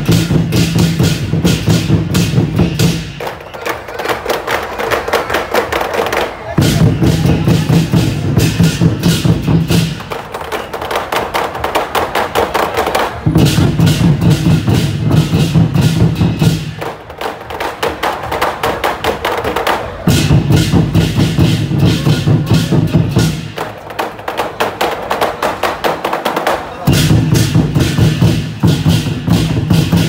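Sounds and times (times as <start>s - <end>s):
heavy low drumming: 0.0s - 3.1s, 6.6s - 10.2s, 13.2s - 16.9s, 20.0s - 24.4s, 26.8s - 30.0s
percussion band rapid beats: 0.0s - 30.0s.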